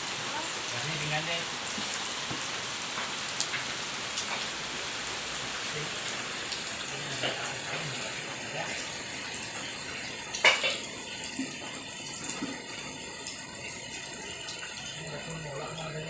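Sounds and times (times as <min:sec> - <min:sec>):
hiss of running water: 0:00.0 - 0:16.0.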